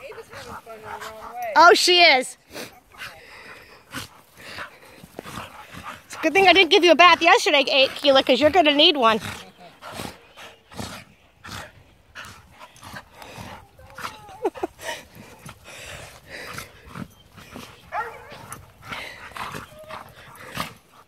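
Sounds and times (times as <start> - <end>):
dogs scuffling and panting: 0.0 - 21.0
high dog yips: 17.9 - 18.4.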